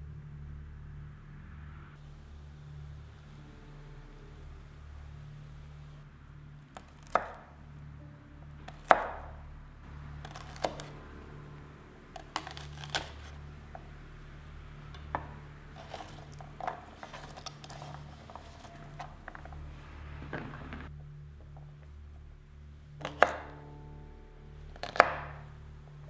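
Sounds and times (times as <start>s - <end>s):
low hum: 0.0s - 26.0s
knife chopping on wooden board: 8.7s - 9.3s, 10.2s - 10.9s, 12.2s - 13.3s, 23.0s - 23.4s.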